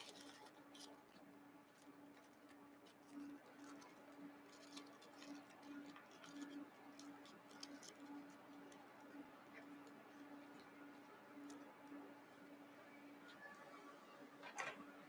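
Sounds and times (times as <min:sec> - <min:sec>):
aluminium foil crinkling: 0:00.0 - 0:12.0
faint steady hum: 0:00.0 - 0:15.0.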